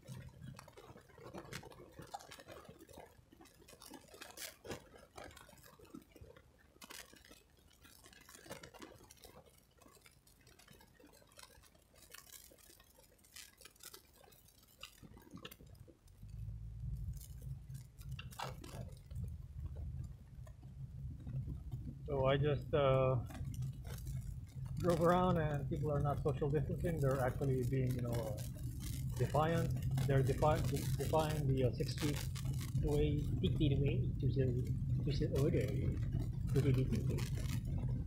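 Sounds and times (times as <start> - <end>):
small clicks and taps: 0.0 - 38.0
car driving rumble: 16.2 - 38.0.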